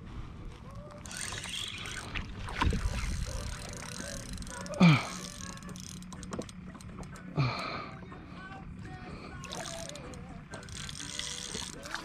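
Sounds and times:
fishing reel clicking: 0.9 - 7.3, 9.3 - 12.0
wind buffeting microphone: 2.3 - 3.7.

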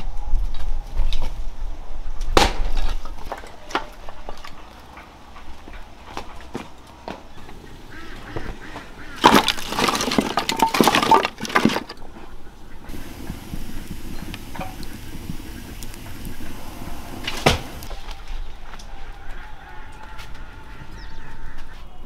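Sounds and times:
firewood knocking and clattering: 2.4 - 18.9
steady hiss: 12.4 - 18.7.

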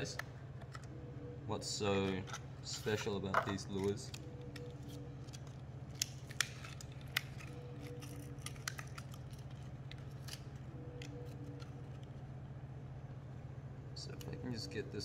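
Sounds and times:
steady low hum: 0.0 - 15.0
plastic packaging crinkling: 3.6 - 12.0.

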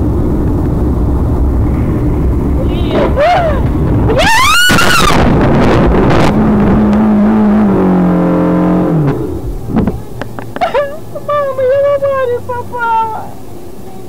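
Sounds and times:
steady drone: 0.0 - 14.0
car skidding scream: 2.6 - 6.3.

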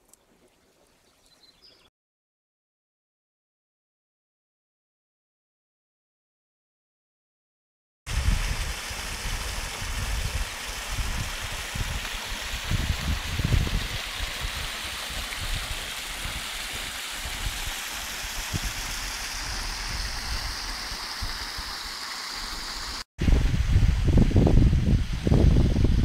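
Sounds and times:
stream rushing over rocks: 8.1 - 23.1.

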